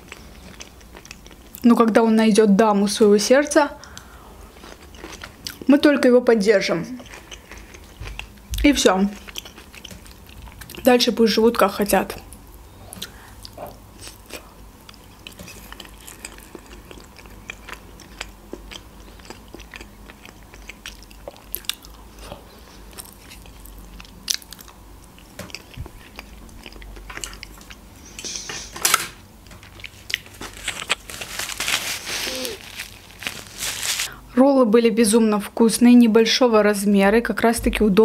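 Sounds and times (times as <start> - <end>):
chewing sushi: 0.0 - 1.6, 3.8 - 5.7, 7.0 - 8.5, 9.1 - 10.9, 12.2 - 28.0, 29.6 - 34.1
rustling: 29.8 - 34.1.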